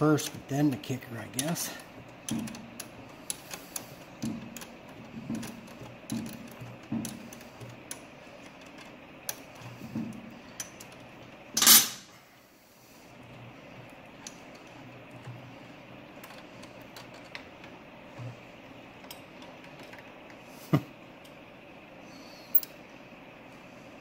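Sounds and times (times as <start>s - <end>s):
metal parts clinking: 11.6s - 12.0s.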